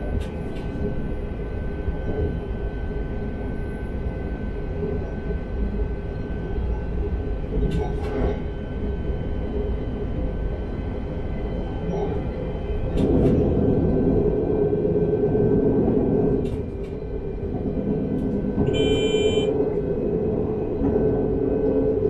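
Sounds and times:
train wheels rumbling on rails: 0:00.0 - 0:22.0
short electronic beep: 0:18.7 - 0:19.6.

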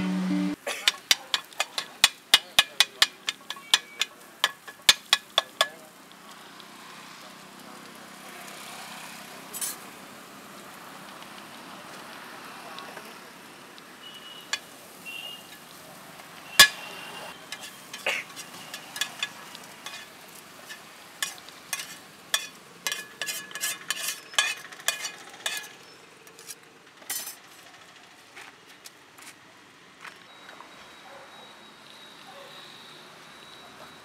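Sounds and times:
low frying sizzle: 0:00.0 - 0:30.7
metal spatula scraping iron pan: 0:00.8 - 0:05.7, 0:16.6 - 0:27.4.

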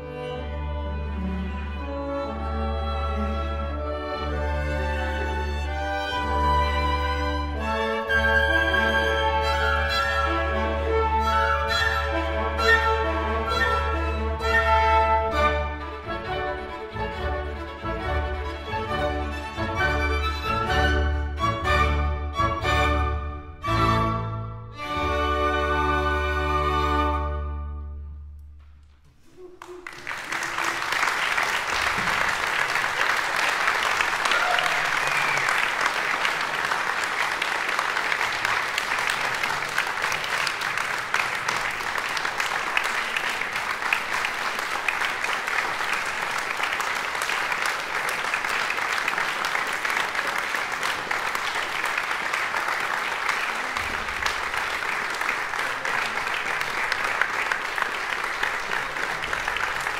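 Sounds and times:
audience applauding: 0:29.2 - 0:59.9.

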